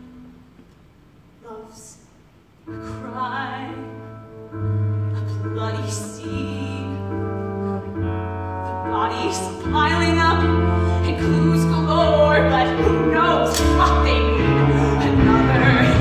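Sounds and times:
woman singing: 2.7 - 4.2, 5.1 - 16.0
steady bass line: 12.6 - 16.0.

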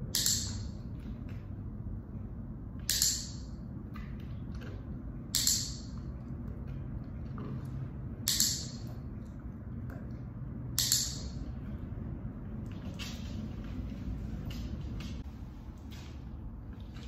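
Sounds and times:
training clicker clicks: 8.3 - 8.9, 10.8 - 11.4.

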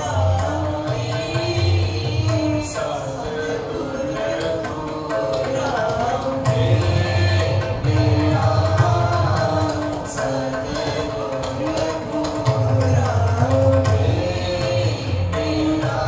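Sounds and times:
tabla drumming: 0.0 - 16.0.

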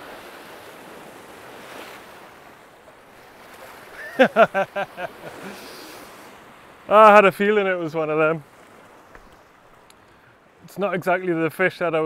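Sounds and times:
waves breaking on rocks: 0.0 - 12.0
man speaking: 6.9 - 8.4, 10.6 - 12.0.

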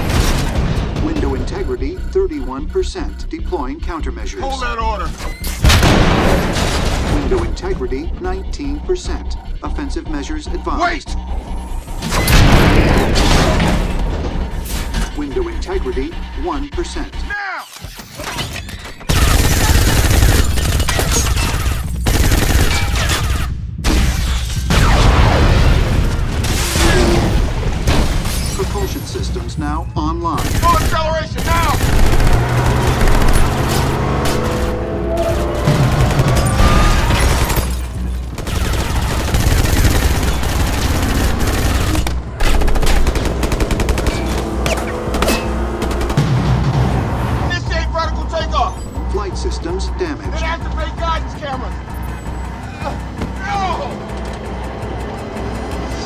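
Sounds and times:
automatic gunfire bursts: 19.1 - 23.0, 30.4 - 33.7, 38.3 - 44.7.

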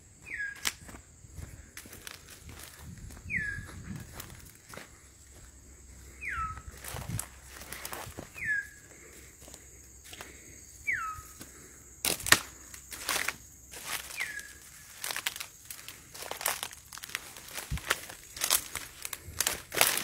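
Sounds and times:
dry leaves crackling and rustling: 12.1 - 20.0.

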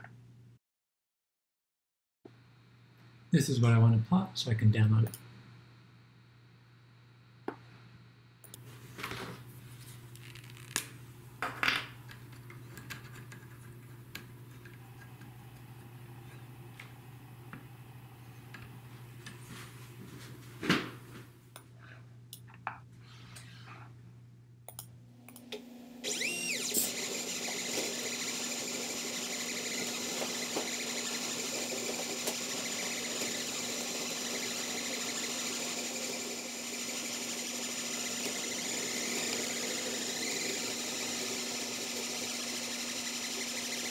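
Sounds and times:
pen plotter stepper motors running: 26.0 - 43.9.

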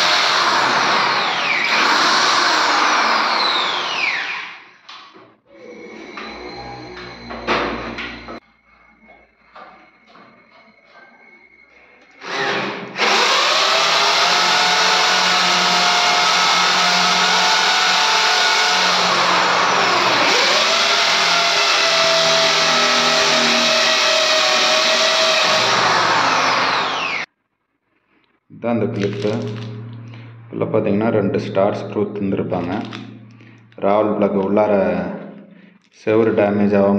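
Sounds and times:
electric drill boring into wall: 0.0 - 4.8, 12.2 - 27.3.

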